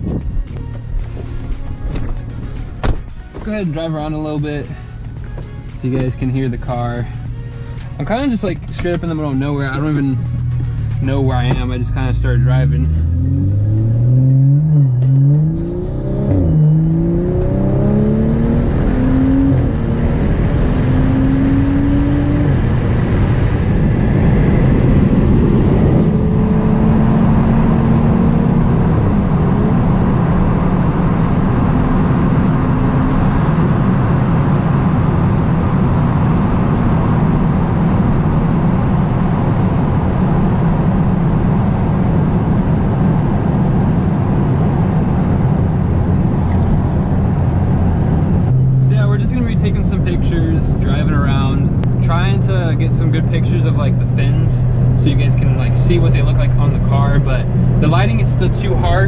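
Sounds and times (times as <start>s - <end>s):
tyre and wind noise in cabin: 0.0s - 4.6s
car engine accelerating: 0.0s - 59.0s.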